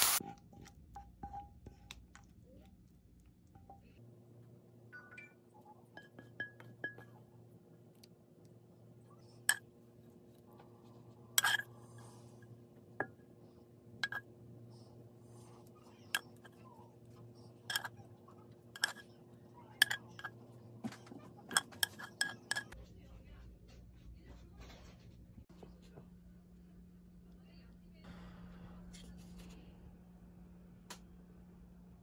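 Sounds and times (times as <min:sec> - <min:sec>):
tongs clinking on ceramic plate: 0:17.6 - 0:18.0, 0:18.8 - 0:19.1, 0:19.8 - 0:20.4, 0:21.5 - 0:22.8.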